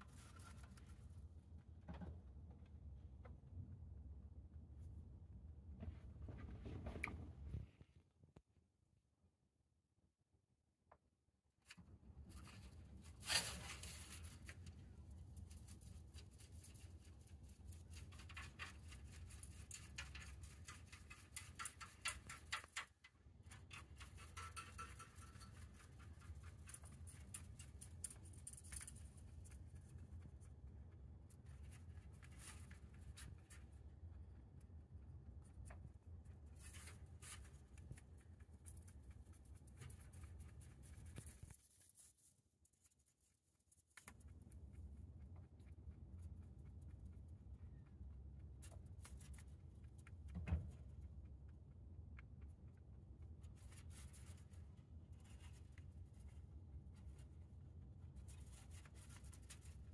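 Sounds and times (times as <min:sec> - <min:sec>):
faint low hum: 0:00.0 - 0:09.8, 0:11.6 - 0:59.9
rabbit chewing hay: 0:12.2 - 0:59.9.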